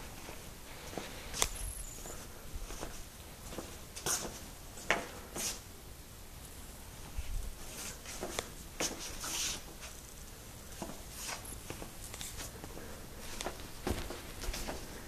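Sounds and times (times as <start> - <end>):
clothing rustling: 10.7 - 15.0.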